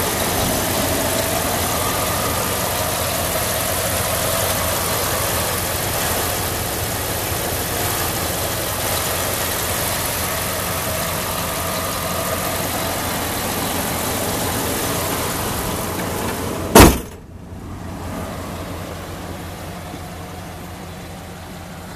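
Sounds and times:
truck engine idling: 0.0s - 21.9s
hood slamming shut: 15.3s - 17.3s.

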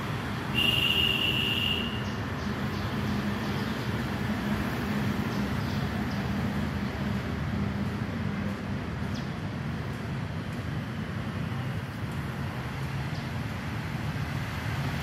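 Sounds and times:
low traffic rumble: 0.0s - 15.0s.

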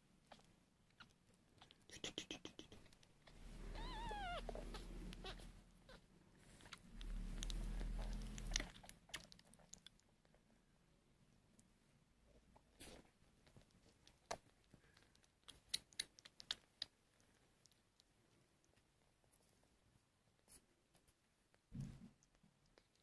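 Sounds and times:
kitten purring: 0.2s - 10.5s
kitten wet sucking clicks: 6.6s - 10.1s, 13.4s - 18.1s.

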